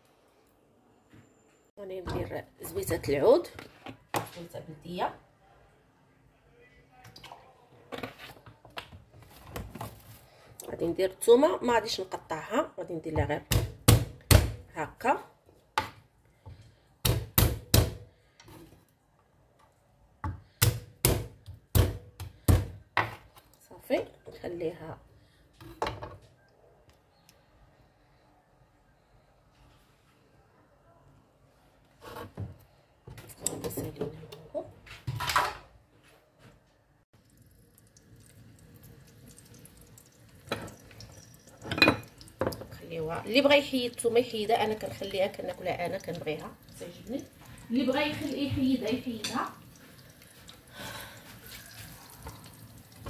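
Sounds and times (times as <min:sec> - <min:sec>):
garlic frying in oil: 0:37.2 - 0:53.0.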